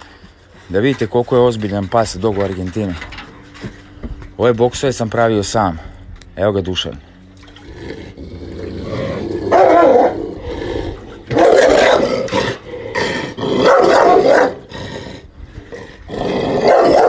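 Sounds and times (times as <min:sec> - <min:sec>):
dog barking and growling: 0:07.8 - 0:17.0.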